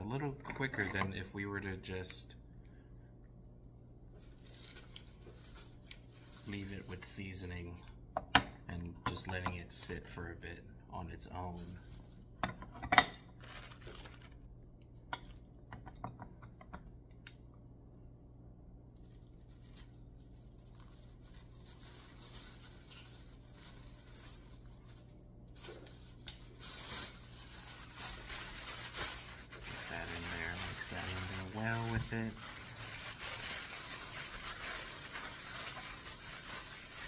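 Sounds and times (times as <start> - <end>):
plastic bag rustling: 4.1 - 7.4, 11.3 - 12.4, 13.3 - 14.5, 19.0 - 37.0.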